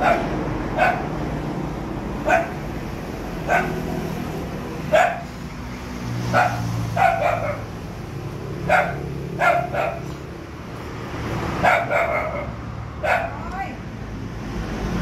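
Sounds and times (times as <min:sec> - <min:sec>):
dog barking: 0:00.0 - 0:01.2, 0:02.2 - 0:02.6, 0:03.4 - 0:03.9, 0:04.9 - 0:05.4, 0:06.3 - 0:07.8, 0:08.6 - 0:10.2, 0:11.6 - 0:13.6
motorbike engines humming: 0:00.0 - 0:15.0.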